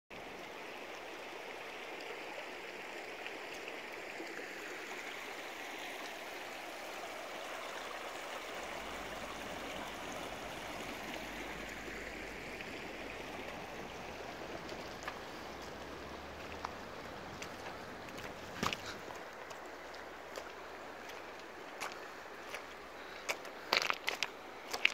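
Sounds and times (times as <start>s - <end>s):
river rushing over stones: 0.2s - 24.9s.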